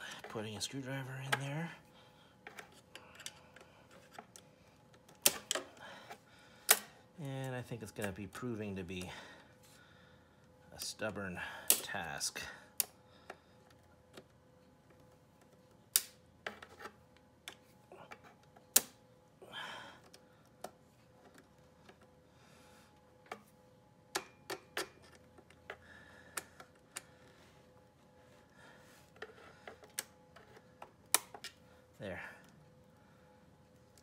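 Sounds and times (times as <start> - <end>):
faint steady hum: 0.0 - 34.0.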